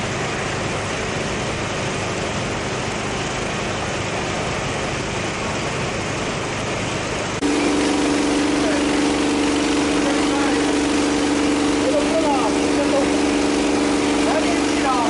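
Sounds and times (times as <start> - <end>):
small engine running: 6.2 - 15.0.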